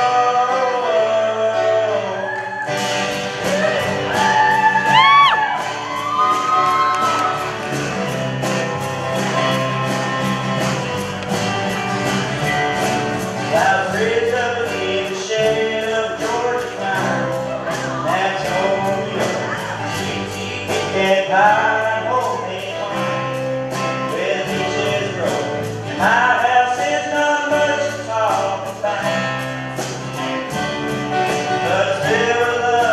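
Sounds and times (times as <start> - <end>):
young man singing: 0.0 - 2.7, 13.3 - 30.1, 31.2 - 32.9
strummed acoustic guitar: 0.0 - 32.9
backing band steady beat: 2.7 - 32.9.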